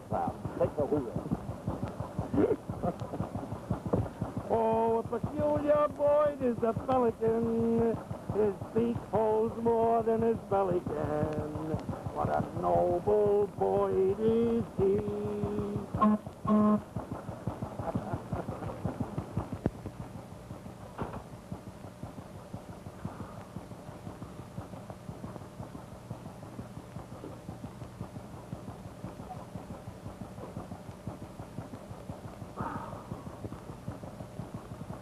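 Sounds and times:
boat engine chugging: 0:00.0 - 0:35.0
man singing: 0:12.9 - 0:15.9.

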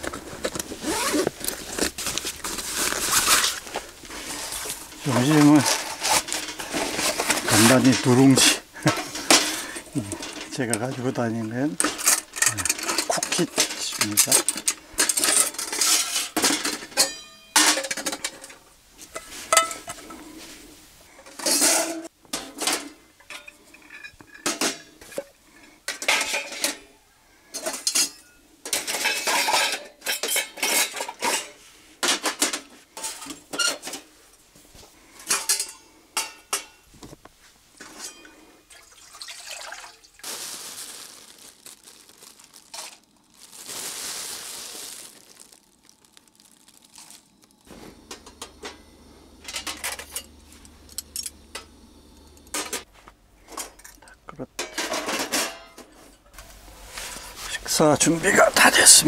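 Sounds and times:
cookware clattering and clinking: 0:11.8 - 0:18.6, 0:21.2 - 0:25.3, 0:25.9 - 0:26.9, 0:27.5 - 0:34.0, 0:35.2 - 0:36.8, 0:37.8 - 0:40.0, 0:53.6 - 0:56.1
steady hissing: 0:40.2 - 0:54.3.

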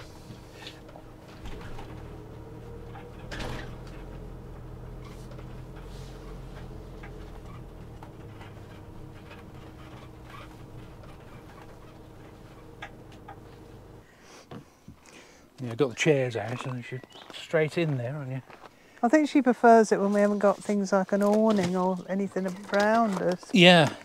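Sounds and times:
low hum of vehicle rolling: 0:00.0 - 0:14.1.

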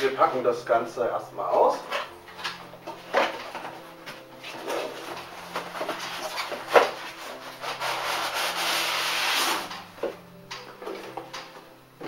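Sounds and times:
styrofoam scraping cardboard: 0:04.4 - 0:09.8.

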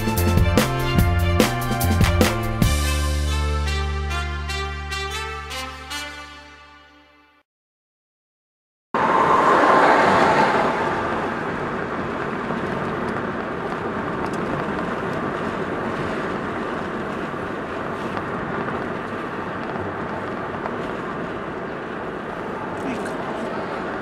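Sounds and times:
road and engine noise in car: 0:09.0 - 0:24.0.

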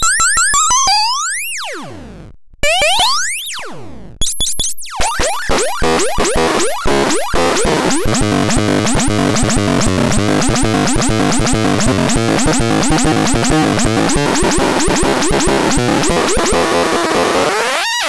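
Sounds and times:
electronic synthesizer chirps: 0:04.2 - 0:17.9
harsh gritty noise: 0:05.8 - 0:17.8.

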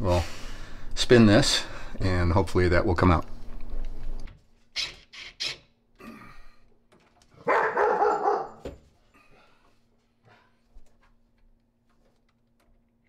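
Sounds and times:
dog barking: 0:07.4 - 0:08.7.

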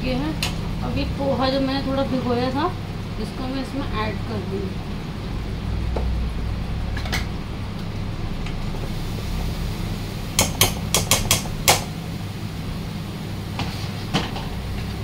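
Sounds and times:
steady low hum: 0:00.0 - 0:15.0
spatula knocking on pan rim: 0:10.4 - 0:11.9.

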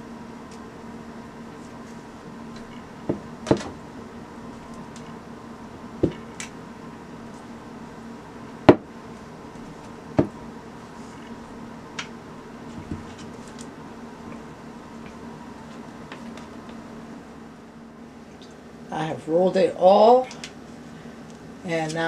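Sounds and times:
rolling pin knocking on stone: 0:08.7 - 0:08.9, 0:10.2 - 0:10.4.

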